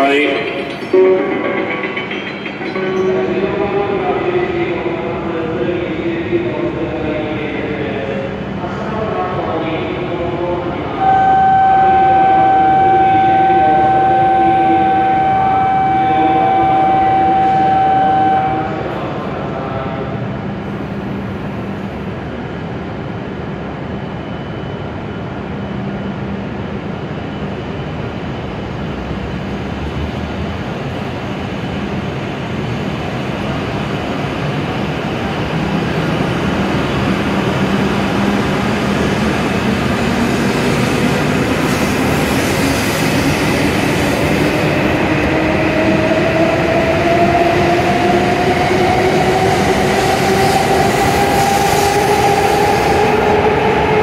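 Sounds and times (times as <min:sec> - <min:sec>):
train running noise: 0:00.0 - 0:54.0
steady electronic signal tone: 0:10.9 - 0:18.9
traction motor whine: 0:11.0 - 0:18.7.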